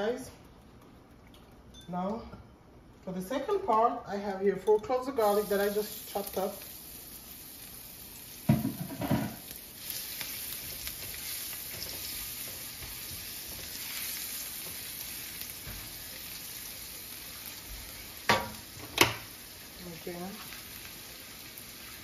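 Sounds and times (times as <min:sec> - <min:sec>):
garlic sizzling in oil: 0:05.1 - 0:22.0.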